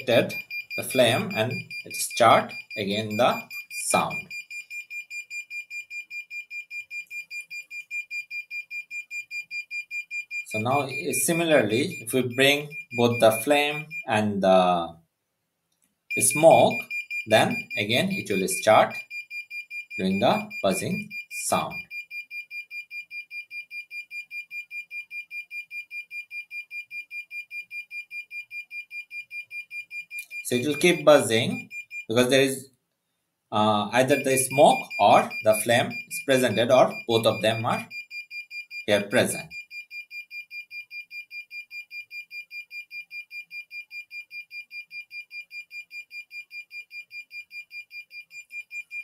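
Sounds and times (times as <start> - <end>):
high-pitched alarm buzzer beeps: 0.0 - 14.2, 16.1 - 32.4, 33.8 - 49.0.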